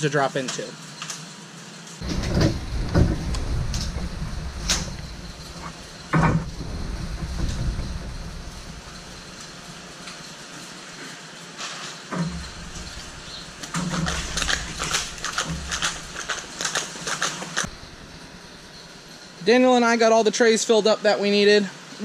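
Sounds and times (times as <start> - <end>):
dull thumps: 2.0 - 9.8
clicks and knocks: 2.0 - 10.2, 12.1 - 17.8.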